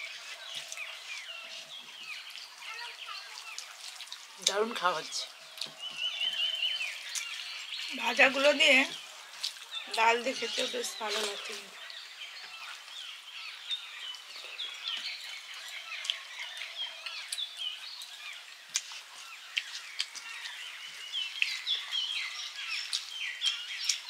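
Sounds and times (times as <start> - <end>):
small birds chirping: 0.0 - 24.0.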